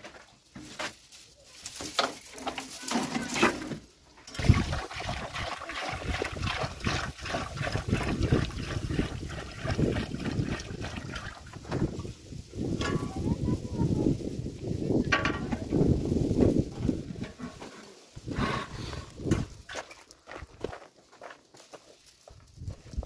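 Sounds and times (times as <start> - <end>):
water pouring into a pot: 4.3 - 12.2.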